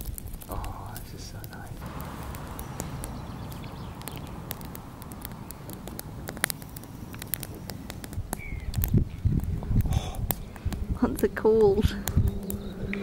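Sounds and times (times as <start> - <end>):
fire hissing: 0.0 - 12.6
campfire crackling: 0.0 - 13.0
fire popping and snapping: 0.0 - 13.0.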